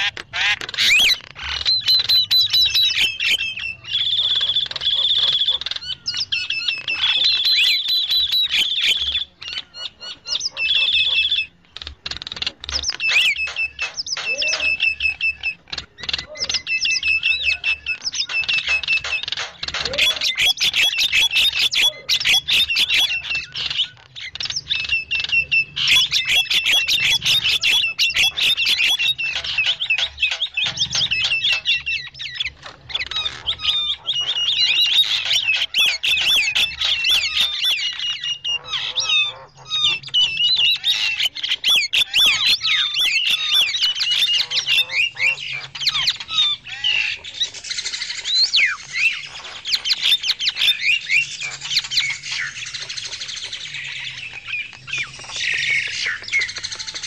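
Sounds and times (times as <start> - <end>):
mynas chattering and squawking: 0.0 - 57.0.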